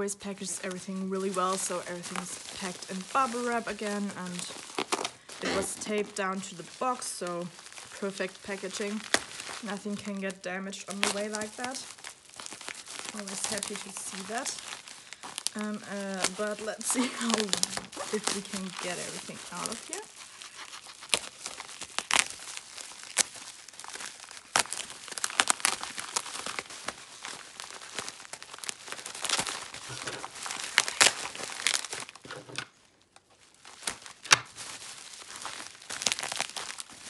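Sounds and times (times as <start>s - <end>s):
bubble wrap crinkling: 0.0s - 37.0s
scissors cutting plastic: 15.9s - 22.4s.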